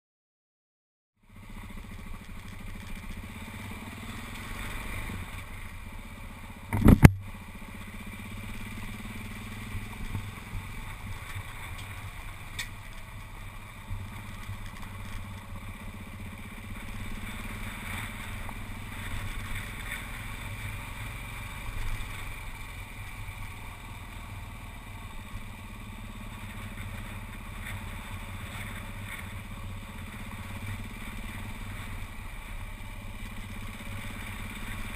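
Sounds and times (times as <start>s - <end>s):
motorcycle running: 1.2s - 34.9s
tyres on gravel: 1.5s - 34.9s
wind noise: 6.7s - 7.2s.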